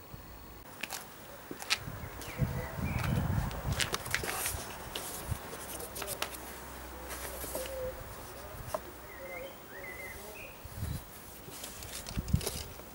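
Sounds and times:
faint birds chirping: 0.0 - 3.6, 6.8 - 11.4.

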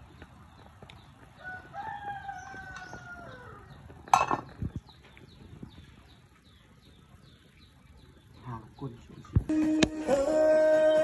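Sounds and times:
rooster crowing: 1.4 - 3.8.

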